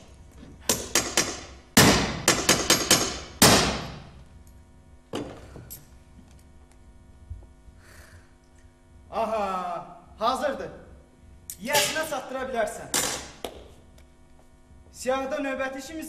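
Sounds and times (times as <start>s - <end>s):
hammer striking a block: 0.6s - 4.0s.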